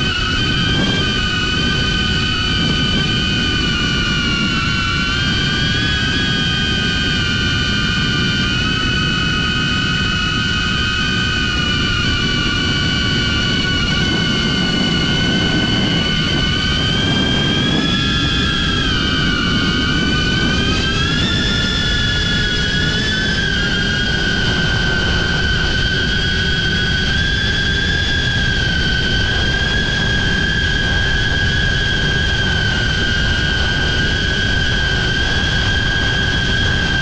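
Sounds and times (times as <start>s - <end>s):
drone motors whining: 0.0s - 37.0s
strong wind rumble: 0.0s - 37.0s.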